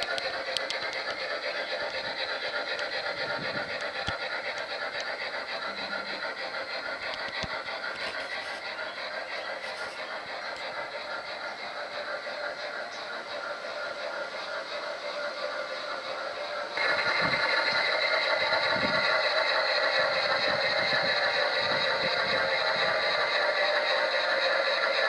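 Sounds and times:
model train wheels clattering: 0.0s - 25.0s.

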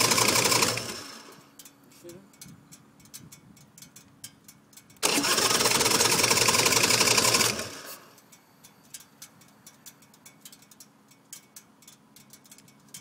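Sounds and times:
motorcycle engine starting and running: 0.0s - 1.5s, 5.0s - 8.2s.

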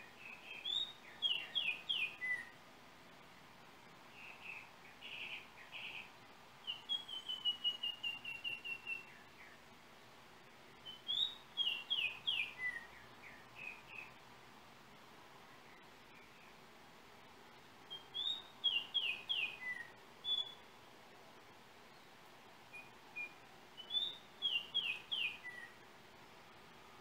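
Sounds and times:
oriole singing whistled notes: 0.0s - 2.6s, 4.1s - 9.6s, 10.8s - 14.2s, 17.9s - 20.7s, 22.7s - 25.8s.

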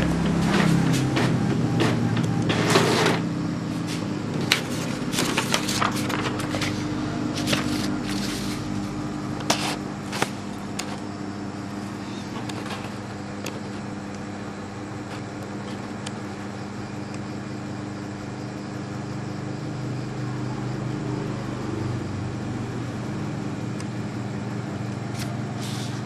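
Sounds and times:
steady low hum: 0.0s - 26.0s
paper rustling and crinkling: 3.9s - 11.0s.

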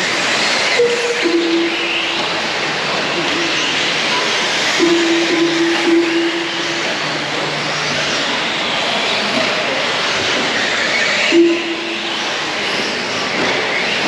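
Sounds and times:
steady tone: 0.7s - 7.8s, 11.3s - 12.7s.

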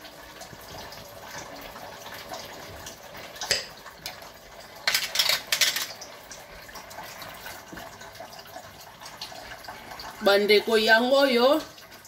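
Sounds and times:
meat and carrots sizzling in pot: 0.0s - 8.2s.

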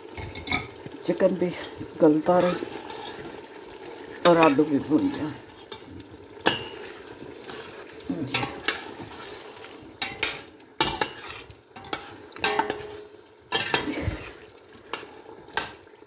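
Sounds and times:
food sizzling: 0.0s - 16.0s
metal spoon scraping pot: 2.2s - 3.4s, 4.2s - 15.7s.

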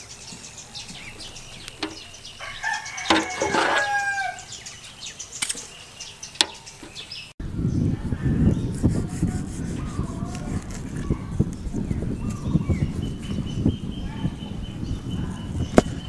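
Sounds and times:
chickens clucking: 0.0s - 4.5s
metal ladle clinking on pot: 1.8s - 2.1s, 3.0s - 4.2s
rooster crowing: 2.2s - 4.6s.

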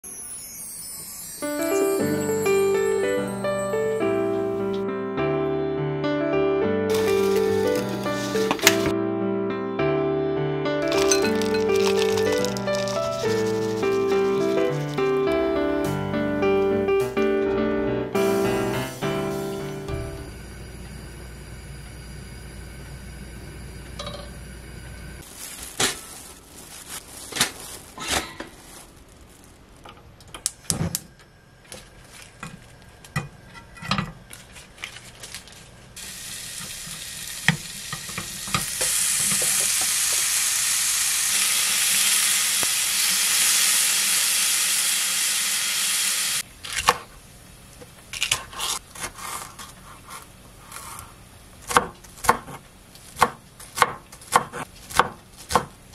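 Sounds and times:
bacon sizzling in a frying pan: 6.9s - 8.9s, 11.0s - 15.1s, 36.0s - 46.4s
knife chopping on wooden board: 51.7s - 52.6s, 53.2s - 55.7s.

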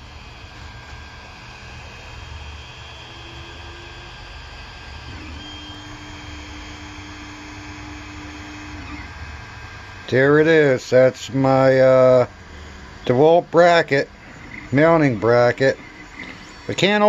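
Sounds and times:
cooling fans whirring: 0.0s - 17.0s
stepper motors singing tones: 5.0s - 9.5s, 13.0s - 17.0s.

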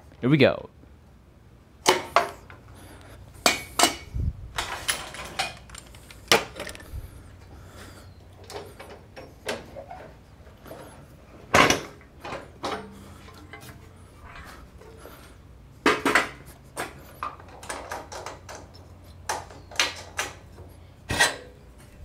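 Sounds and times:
metal parts clanking: 3.6s - 7.0s.

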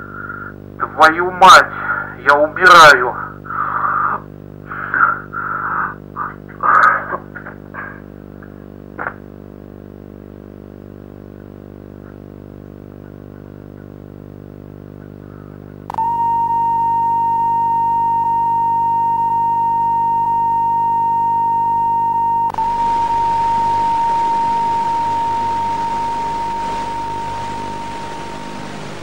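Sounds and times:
low buzzing drone: 15.3s - 29.0s
high-pitched test tone: 15.9s - 29.0s.

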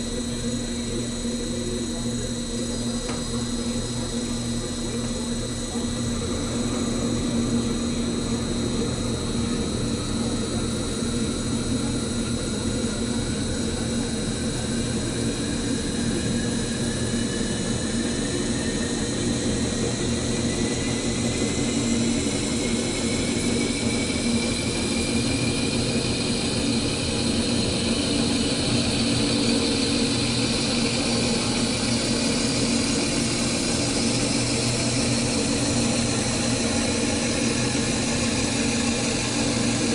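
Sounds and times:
lathe machine hum: 0.0s - 39.9s.

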